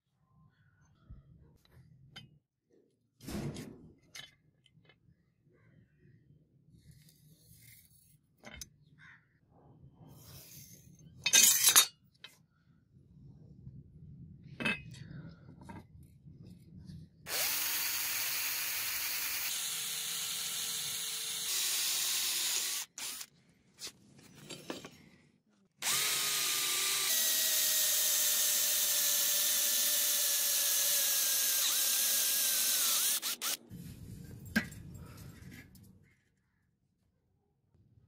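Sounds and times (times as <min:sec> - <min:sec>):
electric drill whining: 0:17.3 - 0:23.3, 0:25.8 - 0:33.6.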